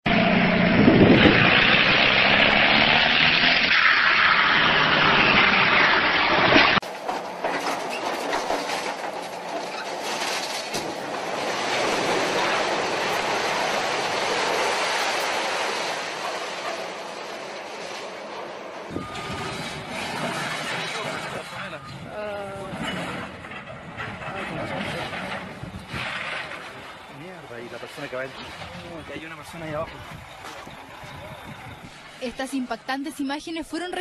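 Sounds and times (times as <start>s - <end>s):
tractor engine running hard: 0.1s - 7.5s, 28.6s - 32.3s
crumbling concrete rumble: 0.1s - 32.4s
falling debris knocks: 4.8s - 21.7s, 22.7s - 29.4s.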